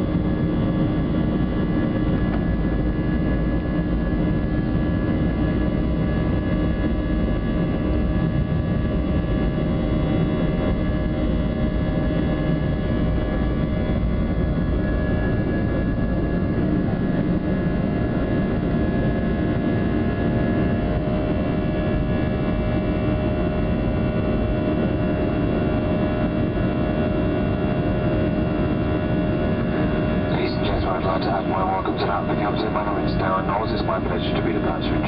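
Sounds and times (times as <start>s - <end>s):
jet engines roaring: 26.4s - 35.0s.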